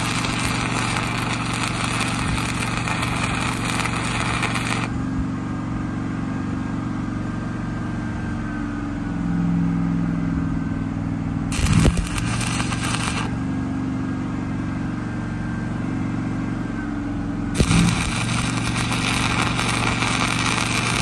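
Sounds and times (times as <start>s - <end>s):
welding arc crackling: 0.0s - 4.9s, 11.5s - 13.4s, 17.6s - 21.0s
engine hum: 0.0s - 21.0s.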